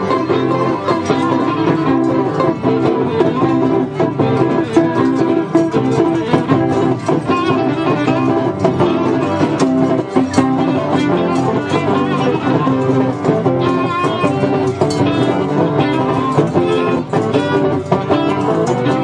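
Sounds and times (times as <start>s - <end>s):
folk dance music on string instruments: 0.0s - 19.0s.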